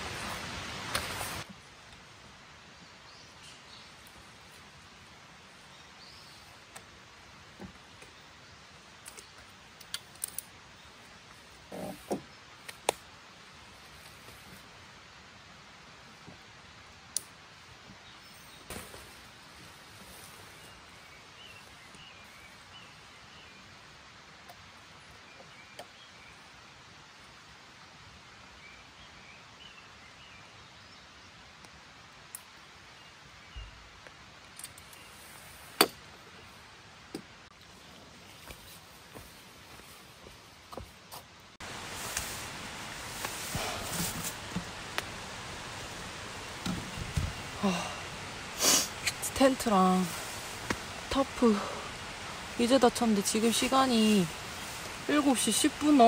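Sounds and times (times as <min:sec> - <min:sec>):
faint hiss: 0:00.0 - 0:56.0
tent poles clicking and snapping: 0:00.8 - 0:01.4, 0:09.0 - 0:10.7, 0:12.1 - 0:13.1, 0:34.4 - 0:35.1
tent stake knocks and clicks: 0:35.8 - 0:36.0.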